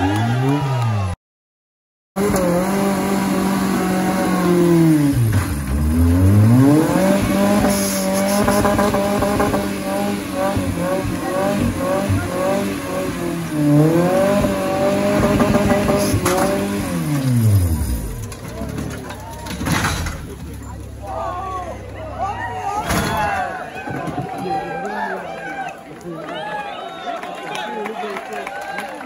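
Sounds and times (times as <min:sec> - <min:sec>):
off-road engine revving hard: 0:02.2 - 0:19.0.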